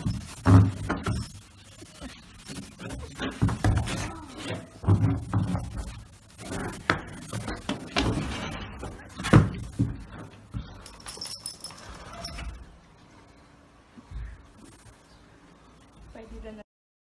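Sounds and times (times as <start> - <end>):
hooves knocking and thumping: 2.4 - 4.2, 4.8 - 12.6.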